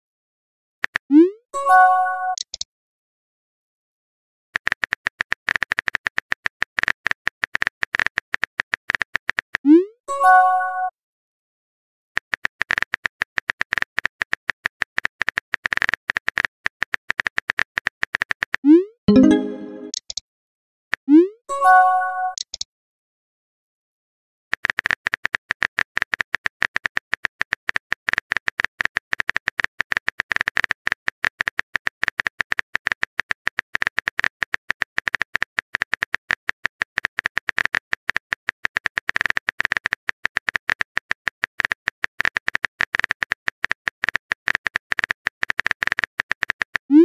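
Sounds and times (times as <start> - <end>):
phone keyboard typing clicks: 2.3 - 2.7.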